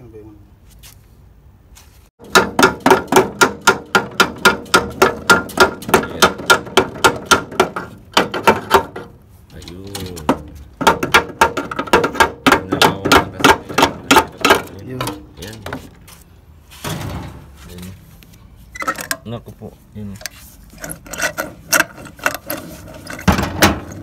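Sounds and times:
hammer tapping on metal hub: 2.2s - 9.1s, 10.1s - 15.3s.

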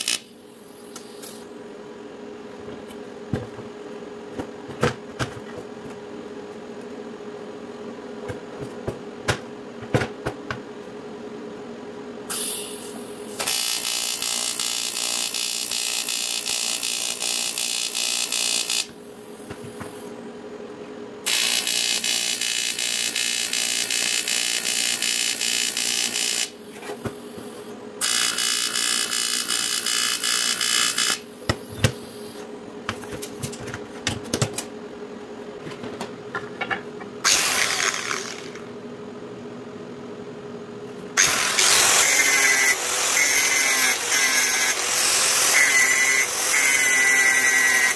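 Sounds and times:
welding arc buzzing hiss: 0.0s - 1.6s, 12.3s - 20.2s, 21.2s - 33.5s, 37.2s - 38.7s, 41.2s - 47.9s
steady hum: 0.0s - 13.5s, 30.5s - 45.6s
angle grinder: 13.4s - 18.9s, 21.3s - 26.5s, 28.0s - 31.2s, 37.2s - 38.7s, 41.2s - 47.9s.

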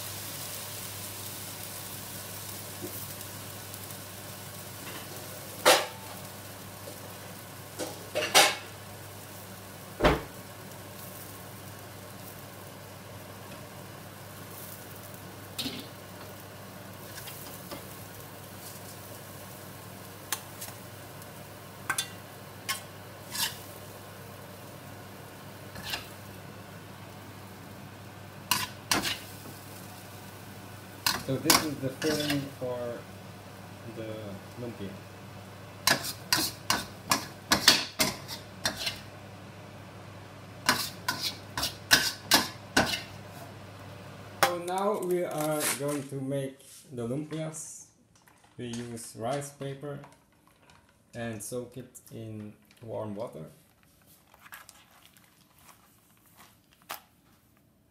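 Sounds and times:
vegetables sizzling in a wok: 0.0s - 45.7s
metal utensils clanking on a wok: 31.0s - 32.5s, 35.9s - 39.0s.

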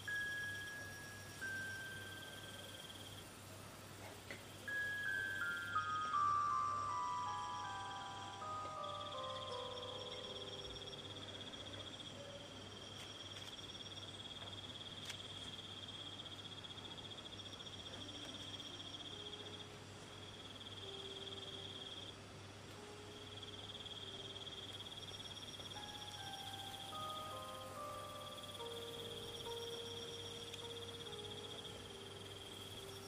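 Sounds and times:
crickets chirping: 0.0s - 33.0s
faint pulsing chirp: 0.0s - 33.0s
soft background music: 0.0s - 33.0s.

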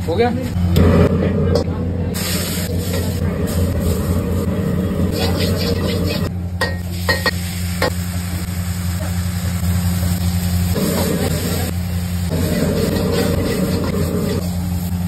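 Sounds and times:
low hum: 0.5s - 6.7s
vegetables sizzling in a wok: 2.1s - 15.0s.

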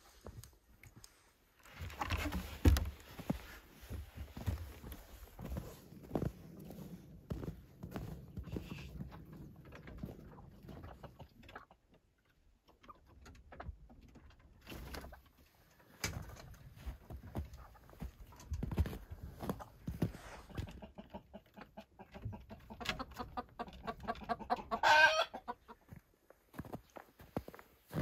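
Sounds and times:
soft knocks and scuffs on wood: 1.8s - 9.1s.

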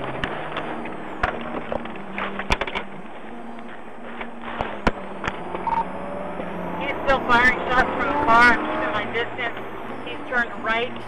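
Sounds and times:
sharp clicks and crackles: 0.0s - 6.5s
low hum: 0.0s - 11.0s
road and engine noise: 0.0s - 11.0s.

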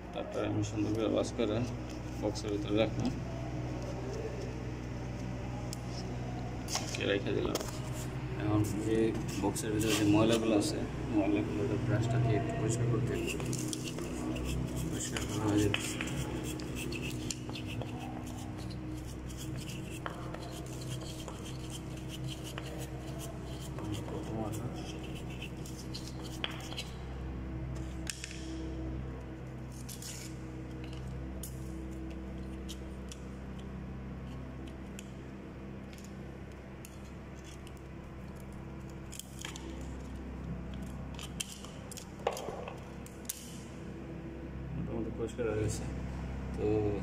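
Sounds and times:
steady low hum: 0.0s - 47.0s
stiff brush scrubbing plastic: 13.0s - 26.9s.

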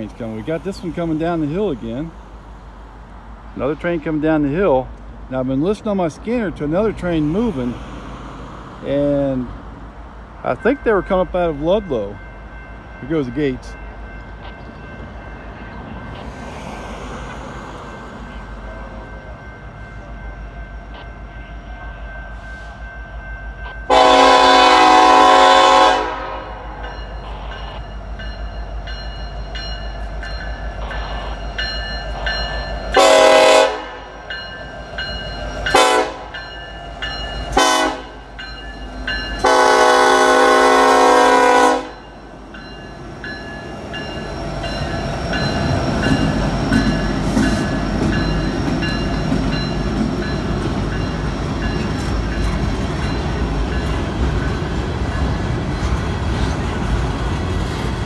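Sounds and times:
locomotive rumble: 0.0s - 58.0s
locomotive air horn blasts: 23.9s - 26.6s, 33.0s - 34.1s, 35.7s - 36.3s, 37.6s - 38.2s, 39.4s - 42.0s.

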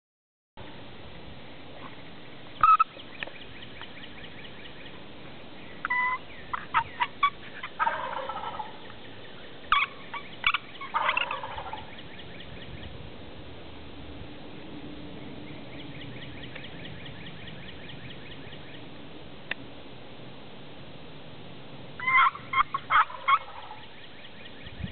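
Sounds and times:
turkey gobbling: 2.6s - 3.3s, 5.8s - 9.0s, 9.7s - 12.4s, 22.0s - 24.7s.

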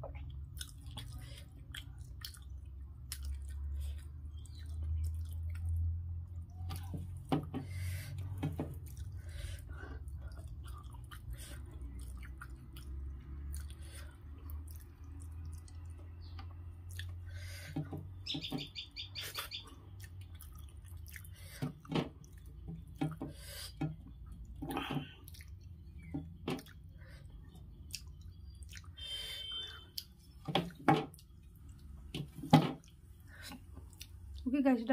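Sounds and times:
wet chewing: 0.0s - 17.5s, 19.2s - 34.5s
lip smacks: 32.8s - 34.4s.

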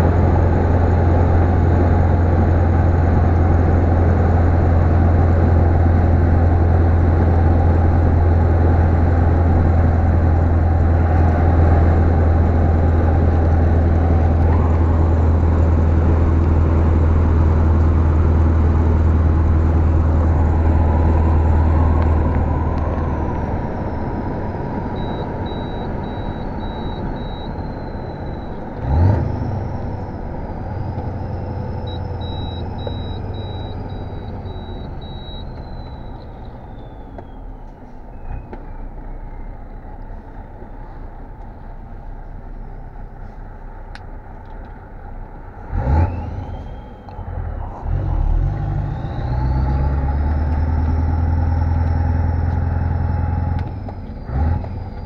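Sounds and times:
diesel truck engine running: 0.0s - 55.0s.

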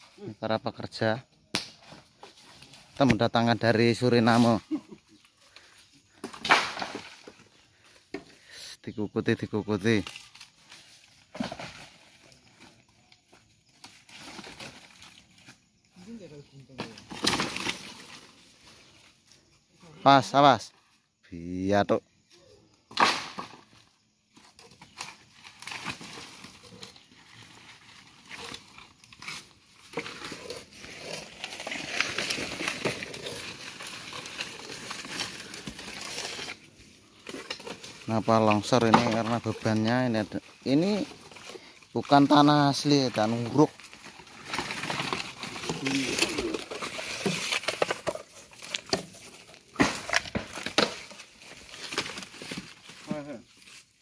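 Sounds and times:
bamboo poles scraping: 1.8s - 8.7s, 22.9s - 54.0s
rustling and crackling: 24.4s - 54.0s
dry bamboo knocking against soil: 49.8s - 51.2s.

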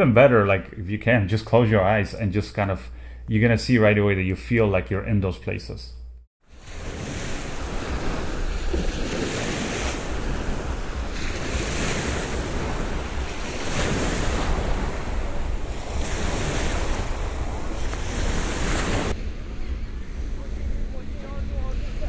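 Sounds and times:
small waves on sandy beach: 6.4s - 22.0s
wind rumbling on microphone: 6.6s - 22.0s.

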